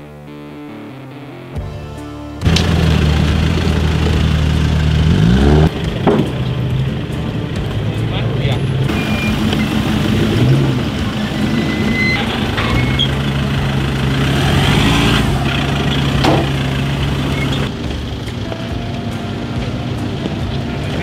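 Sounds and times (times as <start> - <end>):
truck engines running low: 2.4 - 21.0
knocks: 5.8 - 6.5.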